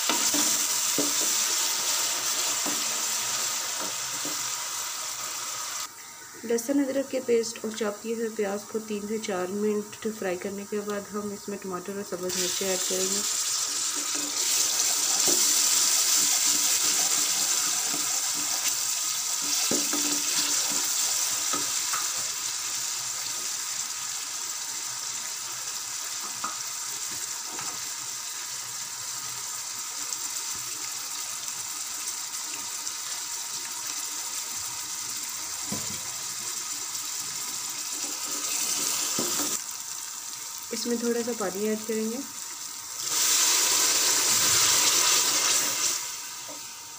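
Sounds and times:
vegetables sizzling in hot oil: 0.0 - 6.0, 11.6 - 46.9.

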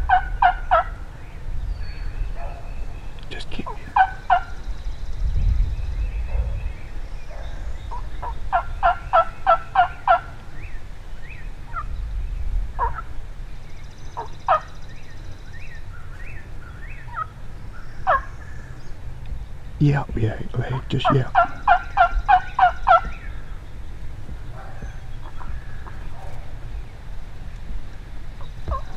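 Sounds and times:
turkey gobbling: 0.0 - 1.0, 3.6 - 4.6, 7.9 - 10.4, 12.8 - 13.1, 14.2 - 14.7, 17.0 - 17.3, 18.0 - 18.3, 21.0 - 23.2, 24.5 - 26.5
low wind rumble: 0.0 - 28.9.

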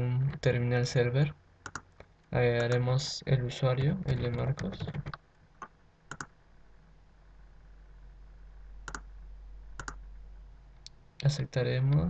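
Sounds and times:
faint low hum: 0.0 - 12.0
computer mouse button clicks: 9.8 - 10.0.

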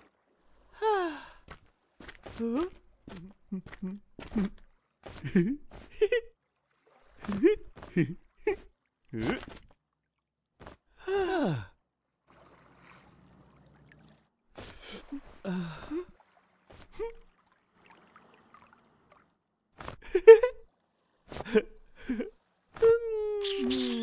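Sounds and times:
cartoon character vocal sounds: 22.9 - 24.0.

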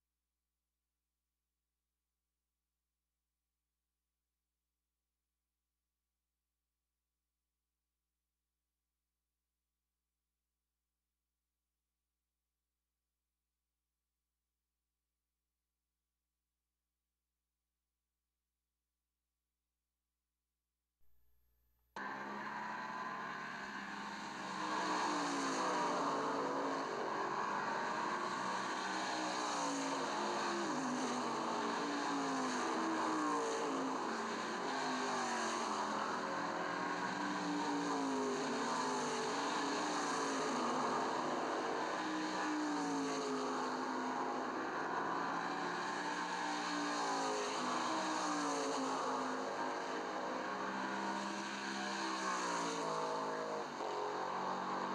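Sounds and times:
racing car engines revving: 22.0 - 54.9.

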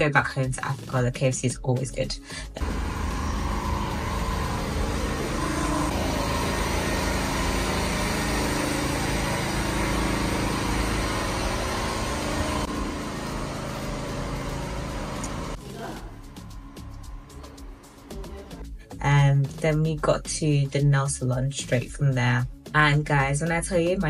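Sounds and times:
vehicle engine and road noise: 2.6 - 18.5.

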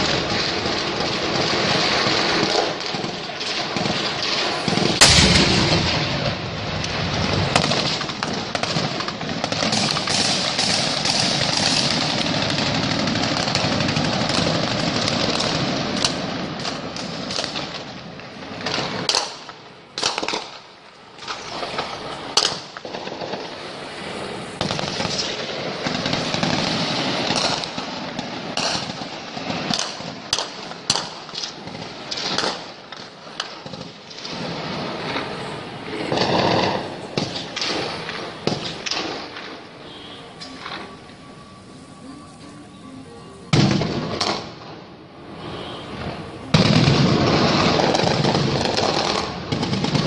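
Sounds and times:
constant rumbling noise: 0.0 - 50.0
automatic gunfire and single shots: 1.0 - 6.4, 7.2 - 17.6
loud bang: 4.9 - 7.7.

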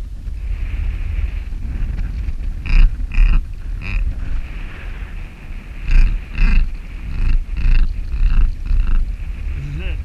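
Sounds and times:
wind rumble on microphone: 0.0 - 10.0
duck call raspy notes: 2.6 - 4.1, 5.9 - 9.0.

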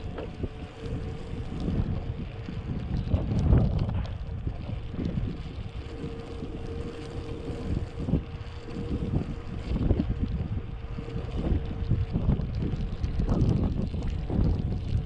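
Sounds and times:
thin steady hum: 0.0 - 15.0
wind buffeting microphone: 0.0 - 15.0.

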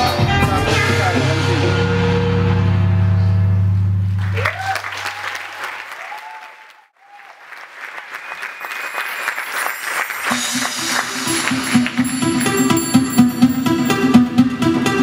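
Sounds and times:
audience applauding and cheering: 4.2 - 13.9
music with pulsing beat: 10.3 - 15.0.

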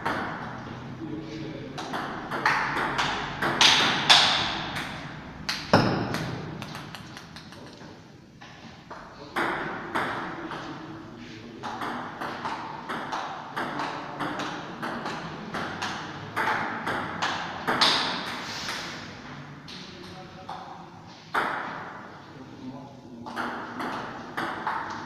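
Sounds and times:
table tennis ball hits: 0.0 - 0.5, 1.8 - 7.8, 11.6 - 18.4, 21.3 - 21.9, 23.3 - 25.0.

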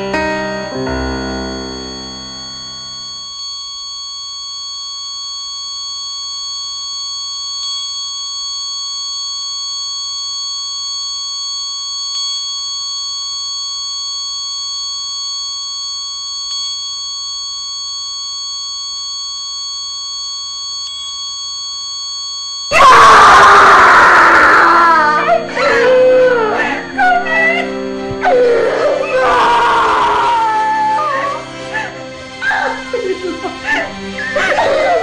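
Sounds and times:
monitor flatline alarm tone: 0.0 - 35.0.

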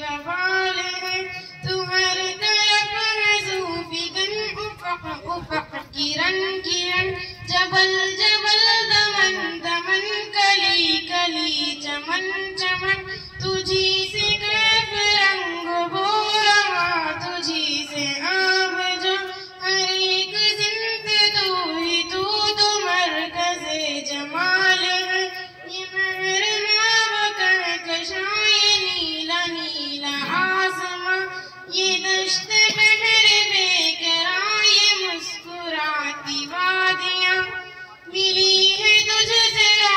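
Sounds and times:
girl singing into a microphone: 0.0 - 39.9.

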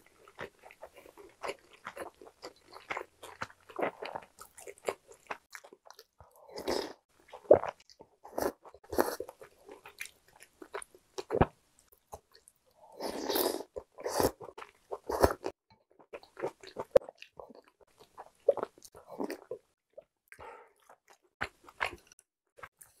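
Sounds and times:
person chewing: 0.0 - 23.0
slurping soup: 12.8 - 15.5.

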